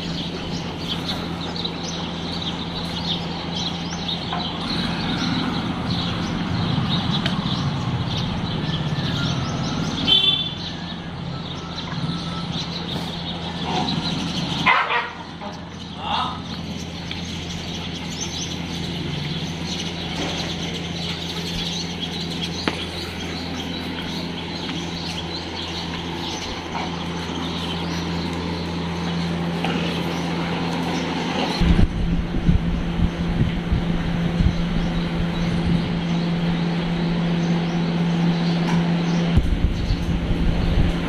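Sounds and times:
low mechanical hum: 0.0 - 41.0
small birds chirping: 0.0 - 41.0
wind buffeting on microphone: 31.6 - 38.0, 38.9 - 41.0.

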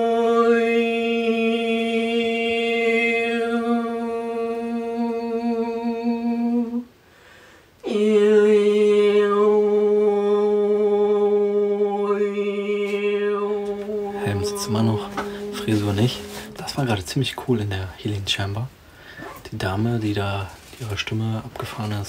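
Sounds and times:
breath: 7.0 - 7.8, 18.8 - 19.4
woman humming long note: 7.9 - 17.1.

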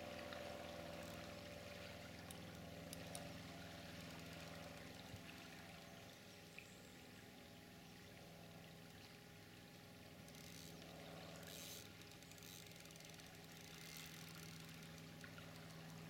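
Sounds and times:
river water flowing: 0.0 - 16.0.

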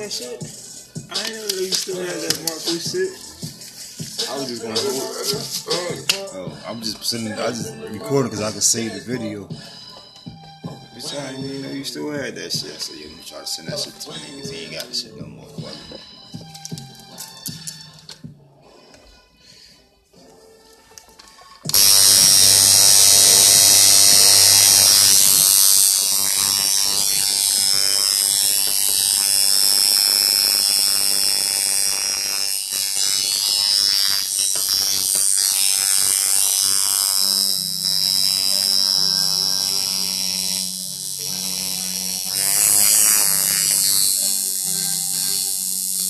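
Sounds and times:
tattoo machine buzzing: 0.0 - 8.8, 21.6 - 46.0.

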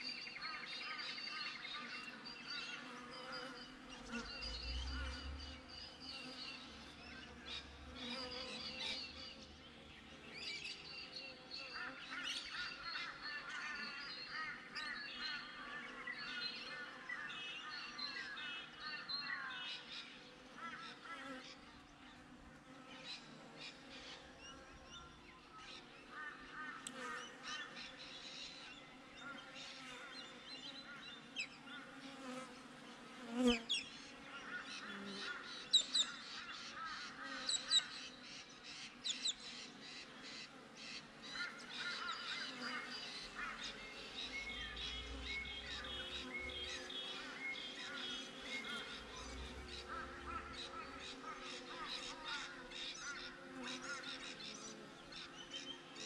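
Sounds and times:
birds chirping and calling: 33.4 - 56.0
bees buzzing: 40.2 - 54.8.

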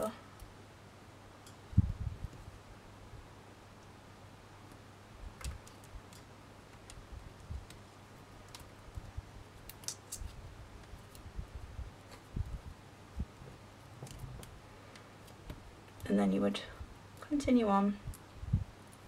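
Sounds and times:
low steady hum: 0.0 - 19.0
wire clicking against frame: 5.4 - 7.8, 8.4 - 11.3.

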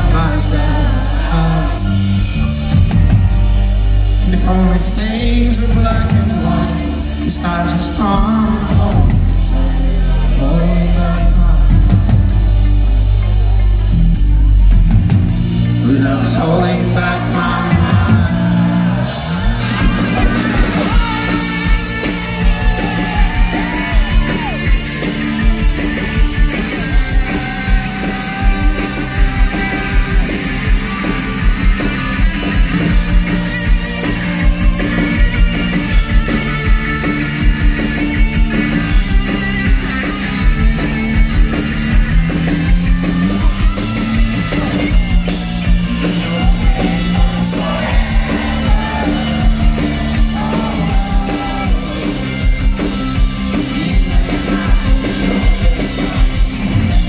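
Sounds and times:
person singing: 0.0 - 2.6, 4.2 - 12.1, 26.6 - 31.5, 45.7 - 57.0
drum kit beat: 0.0 - 57.0
electric guitars: 0.0 - 57.0
live rock band: 0.0 - 57.0
sustained bass: 0.0 - 57.0.

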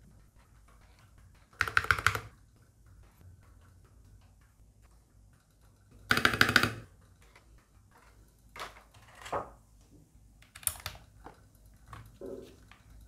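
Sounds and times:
mechanical keyboard keys clicking: 1.6 - 2.3, 10.4 - 11.1.

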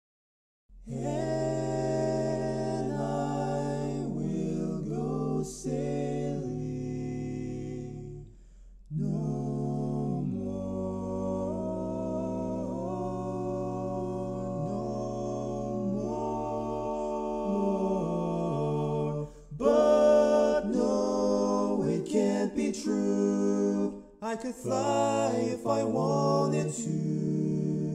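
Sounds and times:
barbershop harmony singing: 9.0 - 27.9.

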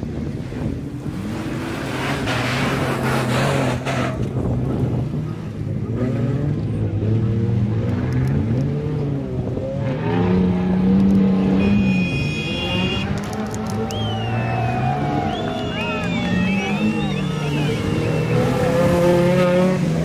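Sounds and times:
off-road engines revving hard: 0.0 - 20.0
tyre and dirt rush: 0.0 - 20.0.

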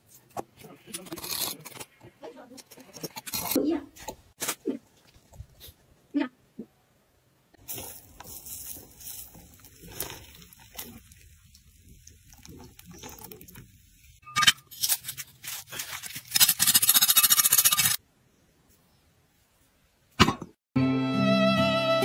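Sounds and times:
molten metal crackling: 7.6 - 14.2.

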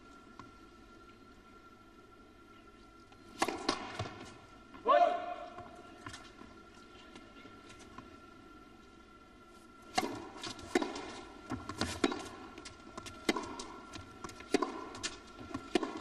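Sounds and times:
racquet hitting tennis ball: 3.4 - 4.2, 9.9 - 16.0
tennis ball bouncing on court: 3.4 - 4.3, 9.9 - 16.0.

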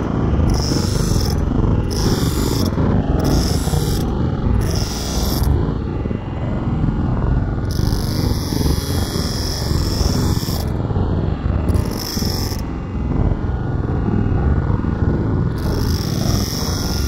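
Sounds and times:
electric grinder running: 0.0 - 6.1, 7.6 - 10.8, 11.6 - 12.8, 15.5 - 17.0.

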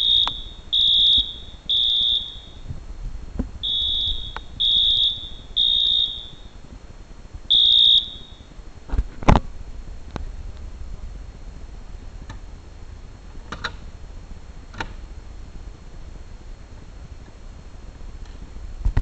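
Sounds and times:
fire alarm horn beeping: 0.0 - 2.7, 3.6 - 6.6, 7.5 - 8.5.

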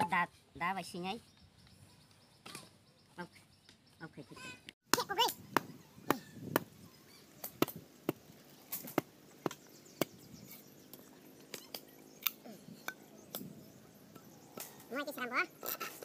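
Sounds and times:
machete chopping bamboo: 7.4 - 10.2.

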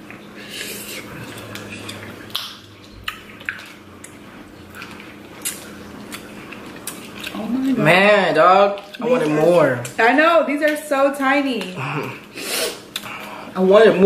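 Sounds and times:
chewing: 0.1 - 7.9, 8.6 - 10.0, 11.6 - 13.4.

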